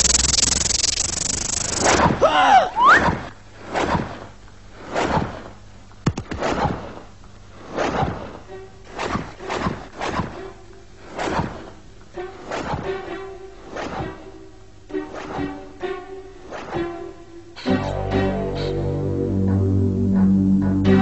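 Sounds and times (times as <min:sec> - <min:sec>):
faint music: 0:08.2 - 0:21.0
low held note: 0:17.6 - 0:21.0.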